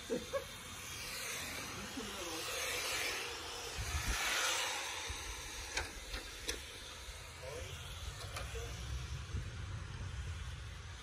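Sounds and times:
radio-control cars whirring: 0:00.0 - 0:10.6.

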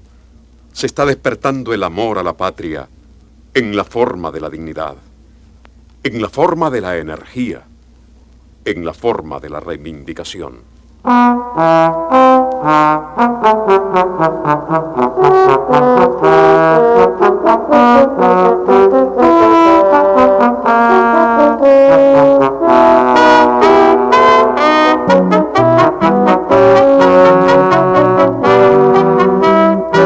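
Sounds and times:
brass band playing: 0:11.1 - 0:30.0.

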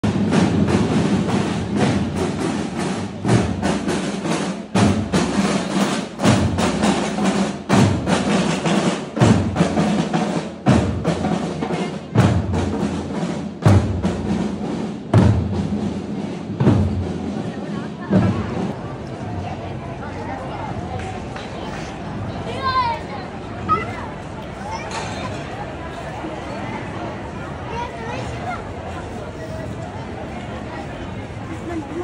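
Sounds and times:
snare drumming: 0:00.0 - 0:17.1.

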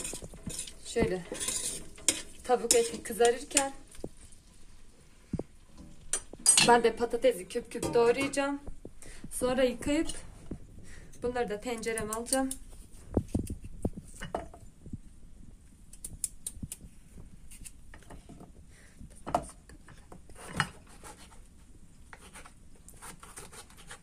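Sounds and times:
knife scraping potato: 0:00.0 - 0:03.8, 0:17.5 - 0:17.8, 0:22.1 - 0:24.0.

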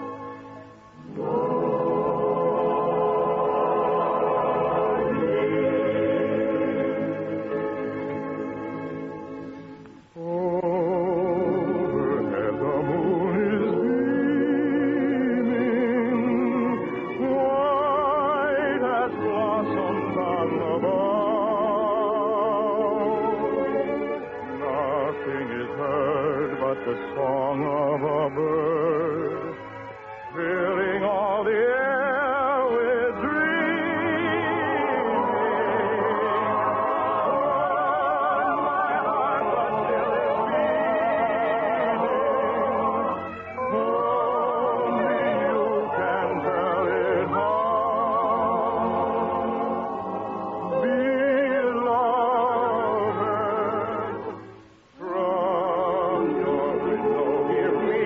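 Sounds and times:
operetta singing with orchestra: 0:00.0 - 0:58.0.

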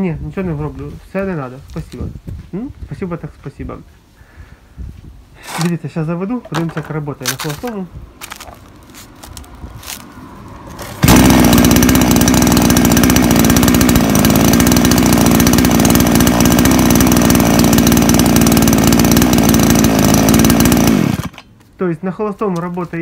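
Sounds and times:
chainsaw idling: 0:05.4 - 0:05.8, 0:06.4 - 0:21.6.

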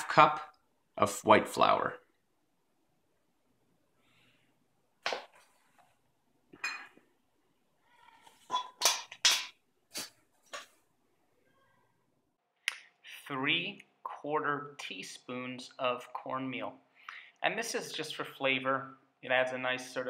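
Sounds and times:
clinks of metal and glass: 0:06.6 - 0:07.0.

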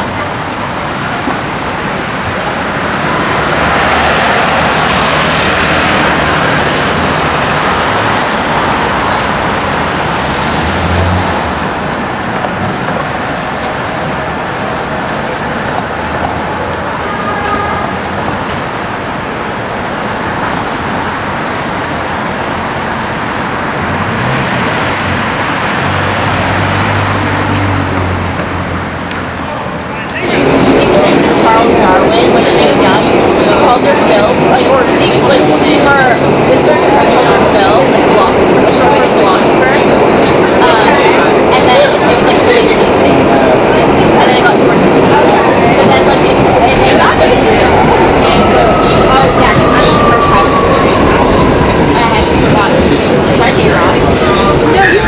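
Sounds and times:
tyres hissing on wet road: 0:00.1 - 0:13.9
passing cars engine hum: 0:01.5 - 0:55.0.

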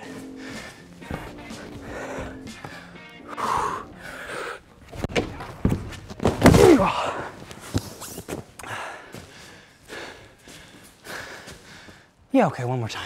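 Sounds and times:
hands and feet thudding on holds: 0:00.0 - 0:03.0, 0:04.8 - 0:09.4
impact with strained groan: 0:05.0 - 0:07.4.

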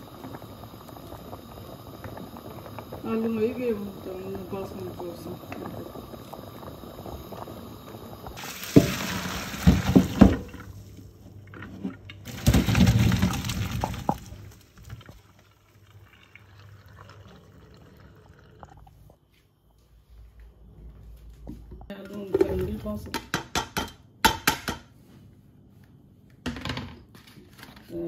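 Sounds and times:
water rushing into a sink: 0:00.0 - 0:11.1, 0:12.2 - 0:18.9
water boiling in a pot: 0:00.0 - 0:19.2.

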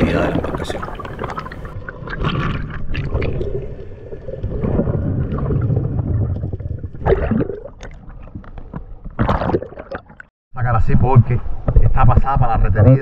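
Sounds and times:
muffled underwater water gurgling: 0:00.0 - 0:08.5.

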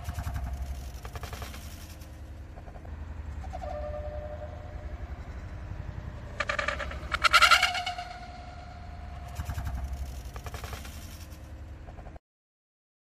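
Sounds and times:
bike freewheel hub clicking: 0:00.0 - 0:02.3
low rumble of street traffic: 0:00.0 - 0:12.2.

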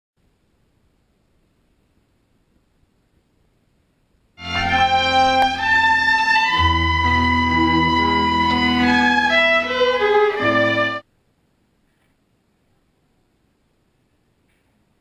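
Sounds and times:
cello bowed sustained notes: 0:04.4 - 0:11.0.

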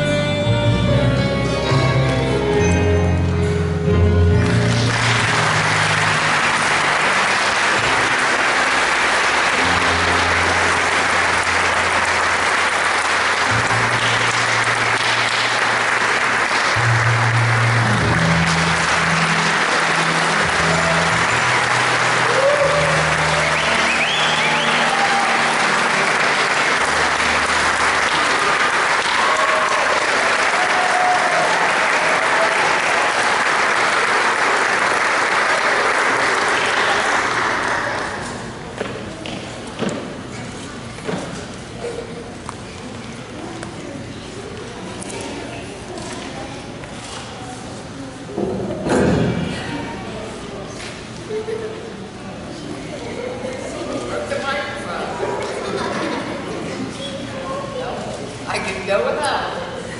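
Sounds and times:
background music: 0:00.0 - 0:29.3
audience applauding: 0:04.4 - 0:38.8.

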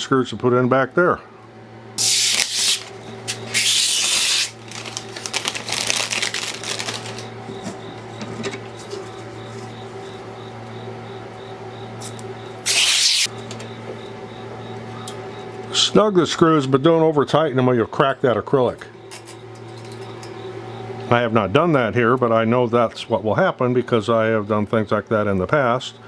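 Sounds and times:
steady low hum: 0:00.0 - 0:26.0
plastic film peeling off: 0:02.0 - 0:07.3.

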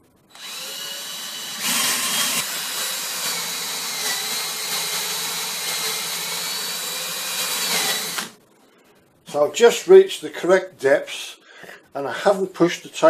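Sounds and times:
power drill boring into wood: 0:00.3 - 0:08.3.

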